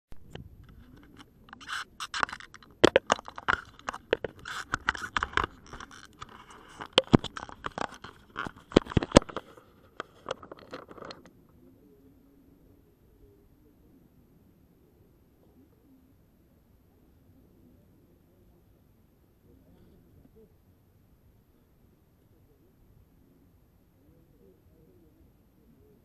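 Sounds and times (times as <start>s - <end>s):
camera handling scraping: 0.3s - 11.3s.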